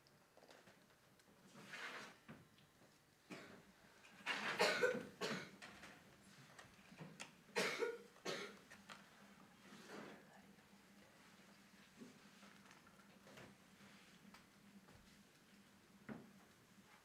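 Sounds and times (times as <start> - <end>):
person coughing: 4.5 - 5.6, 7.6 - 8.6.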